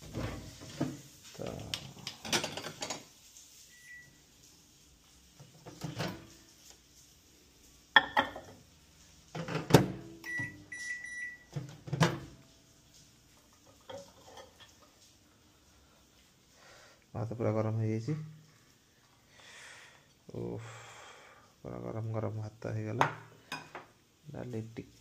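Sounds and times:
microwave electronic beeps: 3.7s - 4.2s, 10.2s - 11.5s.

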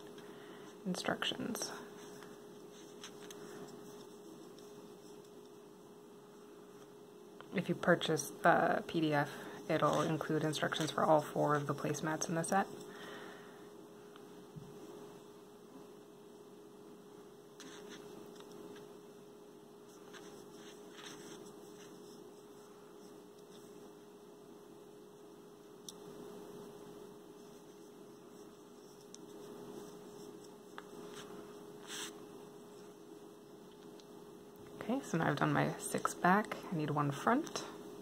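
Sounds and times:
faint electrical hum: 0.0s - 38.0s
crochet hook and yarn rustling: 0.8s - 5.7s, 9.6s - 12.9s, 17.6s - 18.9s, 19.9s - 23.8s.

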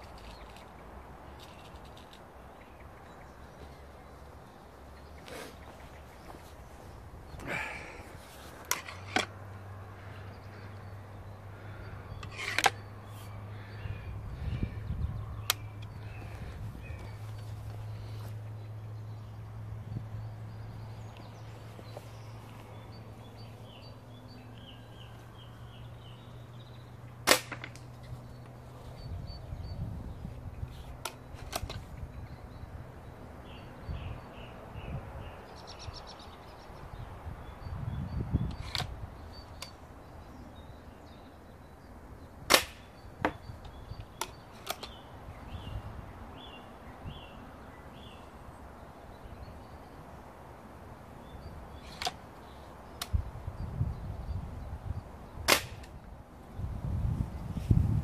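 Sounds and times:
air rifle cracks: 27.2s - 27.9s, 42.5s - 42.9s, 55.5s - 56.0s.

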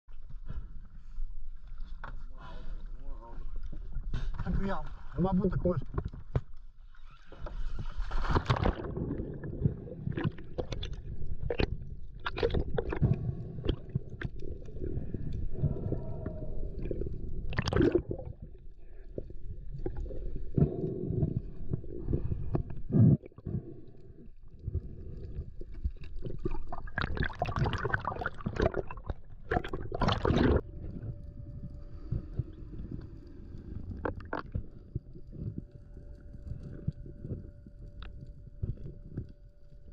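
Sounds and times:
underwater rushing and bubbling: 5.9s - 39.9s
faint steady hum: 8.6s - 39.9s.

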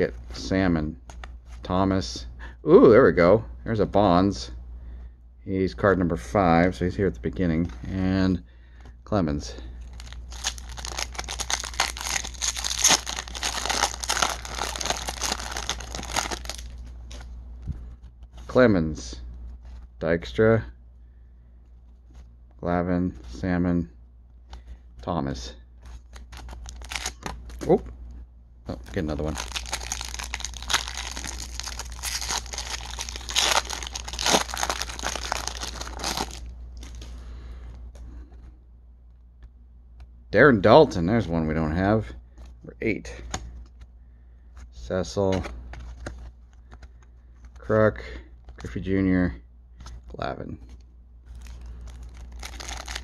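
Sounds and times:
plastic wrapper tearing and crinkling: 9.9s - 17.2s, 26.0s - 27.6s, 29.0s - 37.1s, 51.3s - 53.0s.

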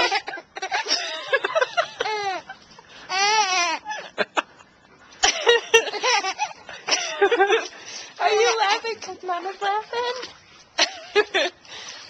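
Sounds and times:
woman laughing: 0.0s - 8.6s, 10.8s - 11.6s
baby giggling: 3.1s - 4.0s, 5.8s - 7.1s.

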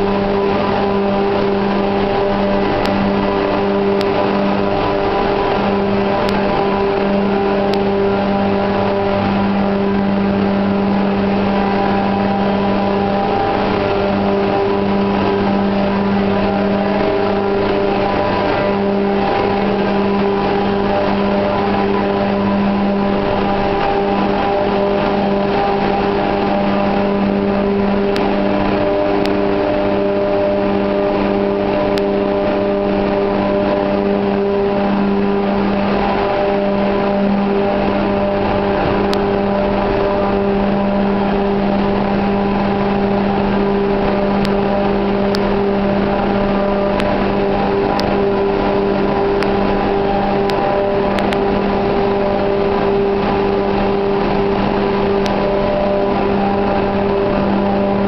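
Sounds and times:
diesel engine room din: 0.0s - 58.0s.

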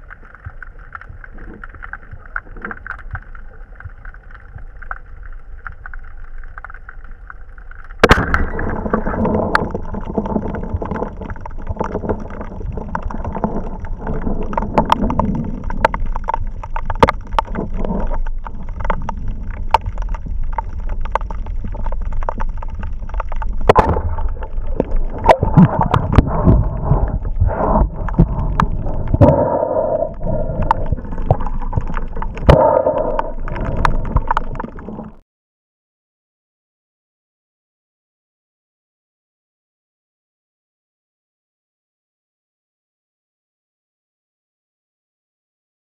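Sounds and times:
muffled underwater rush: 0.0s - 35.2s.

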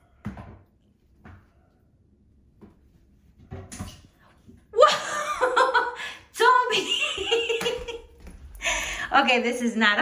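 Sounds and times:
person laughing: 4.8s - 6.1s.

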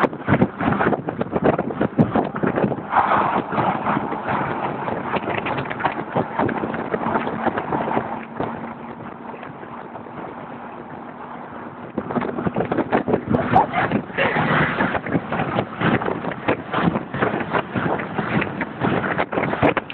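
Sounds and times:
car driving at speed: 0.0s - 19.9s
wind buffeting microphone: 0.0s - 19.9s
faint steady drone: 6.8s - 12.3s.

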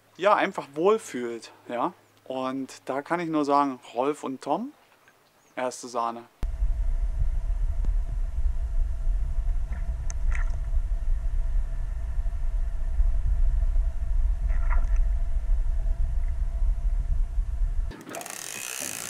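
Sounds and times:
faint constant hum: 0.0s - 18.0s
low underwater rumble: 6.4s - 17.9s.

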